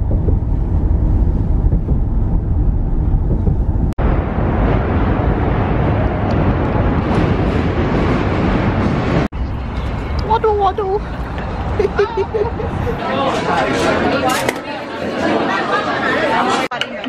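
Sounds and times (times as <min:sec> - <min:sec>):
car cabin road rumble: 0:00.0 - 0:13.0
city traffic noise: 0:00.0 - 0:17.0.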